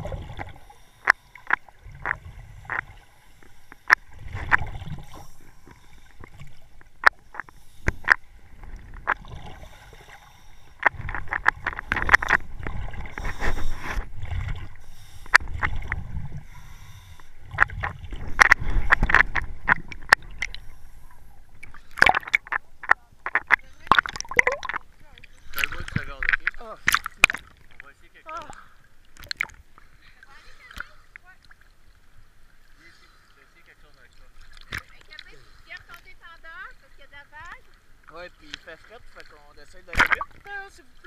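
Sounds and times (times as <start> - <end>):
underwater rumbling and gurgling: 0.0 - 32.7.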